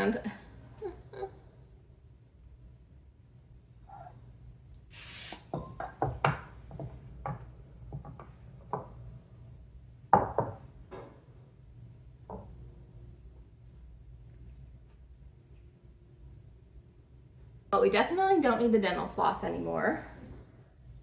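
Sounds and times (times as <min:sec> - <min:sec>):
cooking spray hiss: 0:04.8 - 0:05.6
knocks on a kitchen counter: 0:05.5 - 0:08.9, 0:10.1 - 0:10.6.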